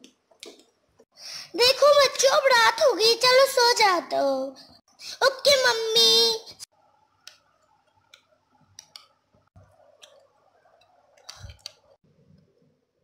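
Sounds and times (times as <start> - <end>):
faint clicks and taps: 7.2 - 12.7.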